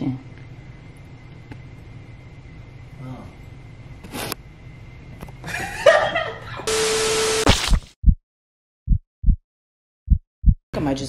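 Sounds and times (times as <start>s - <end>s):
tv static hiss: 6.7s - 7.8s
heartbeat thuds: 8.9s - 9.4s, 10.1s - 10.6s.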